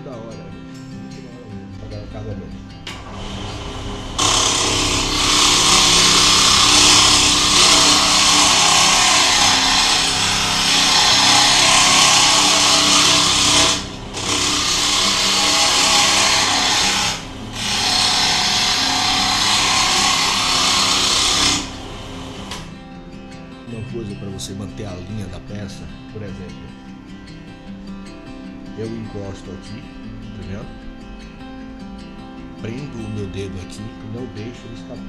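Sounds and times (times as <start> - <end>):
lathe motor hum: 2.9 - 22.7
chisel hissing on spinning wood: 3.0 - 22.7.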